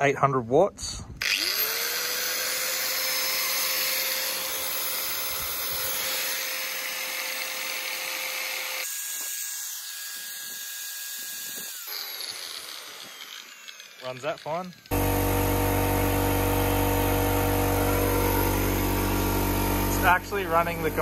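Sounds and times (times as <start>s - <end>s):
angle grinder motor whine: 1.2s - 21.0s.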